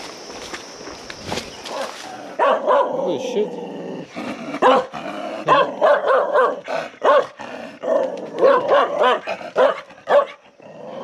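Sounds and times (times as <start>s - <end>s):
dog barking: 1.8s - 3.2s, 4.6s - 10.4s.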